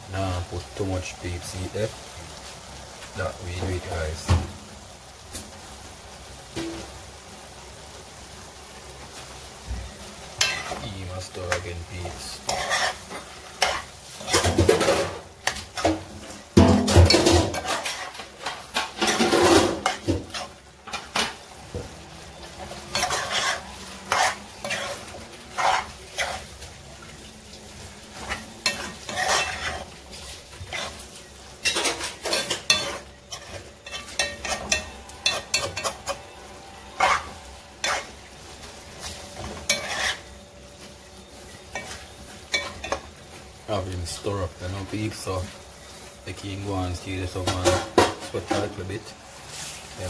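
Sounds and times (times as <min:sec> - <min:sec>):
food sizzling: 0:00.0 - 0:50.0
metal spoon scraping frying pan: 0:10.4 - 0:21.5, 0:22.3 - 0:26.6, 0:27.8 - 0:40.4, 0:41.3 - 0:43.1.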